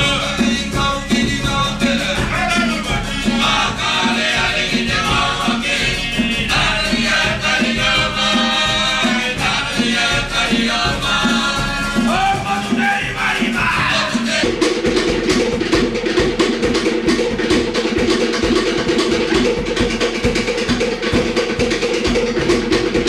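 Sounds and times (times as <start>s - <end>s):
ukuleles and guitars strumming: 0.0s - 14.6s
group singing: 0.0s - 16.0s.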